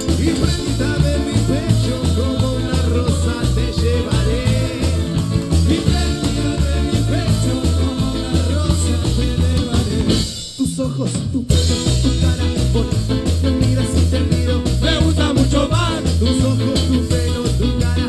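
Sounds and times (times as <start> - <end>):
live band playing: 0.0 - 18.0
man singing: 0.0 - 18.0.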